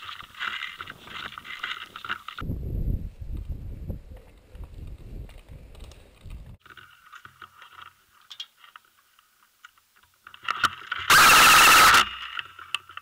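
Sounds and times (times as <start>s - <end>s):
electric rifle full-auto burst: 11.1s - 12.2s.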